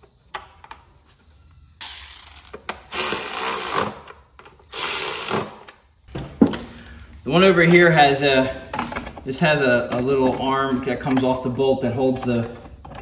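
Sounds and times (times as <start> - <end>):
electric ratchet running: 1.8 - 4.1, 4.7 - 5.7.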